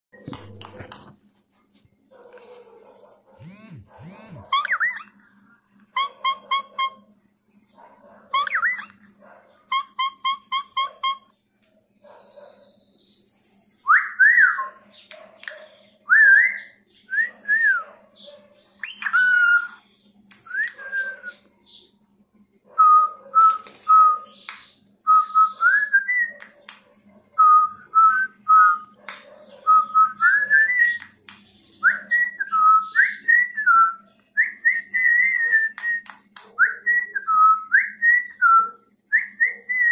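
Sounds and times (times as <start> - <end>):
short scratchy bird calls: 2.4 - 7.0
whistled tune: 20.4 - 21.4, 29.7 - 31.1, 31.8 - 39.9.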